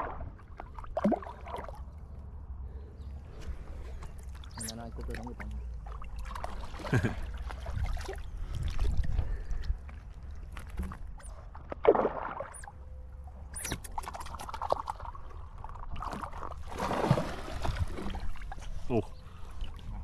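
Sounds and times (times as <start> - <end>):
water splashing from swimming: 0.0 - 1.9, 4.2 - 9.7, 11.5 - 12.7, 14.0 - 18.9
low rumble of moving water: 0.0 - 20.0.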